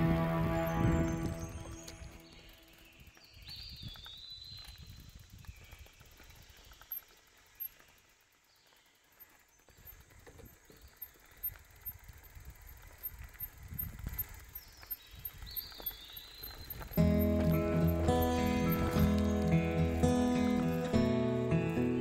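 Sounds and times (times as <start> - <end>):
loud music: 0.0 - 1.8
bike rolling on gravel: 0.0 - 22.0.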